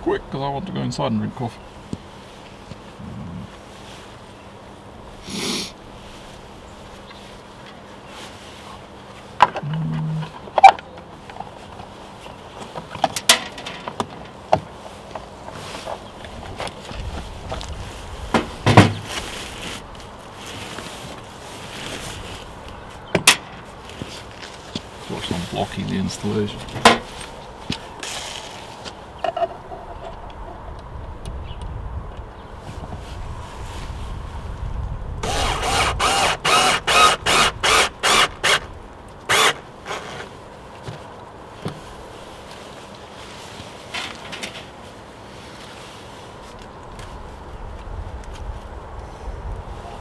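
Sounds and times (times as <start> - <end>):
cordless drill whirring bursts: 35.2 - 38.7, 39.3 - 39.6.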